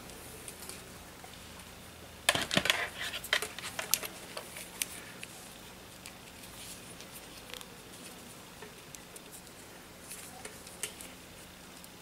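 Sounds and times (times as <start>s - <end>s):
multimeter handling clicks and rustles: 2.3s - 5.3s.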